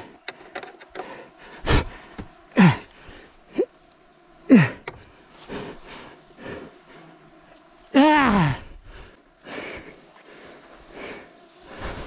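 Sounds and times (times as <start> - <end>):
man sighing and groaning: 1.6 - 3.8, 4.4 - 5.8, 7.9 - 9.1.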